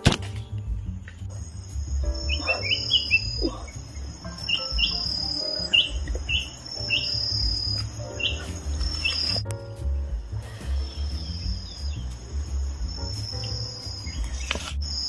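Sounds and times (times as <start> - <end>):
high bird chirps: 0.4 - 9.5, 10.7 - 15.0
high insect buzz: 1.4 - 9.4.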